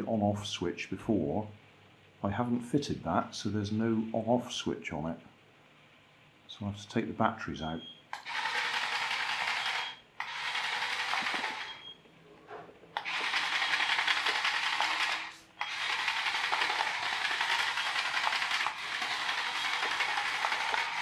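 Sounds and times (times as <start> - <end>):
toy bulldozer motor whirring: 8.2 - 11.9, 13.0 - 21.0.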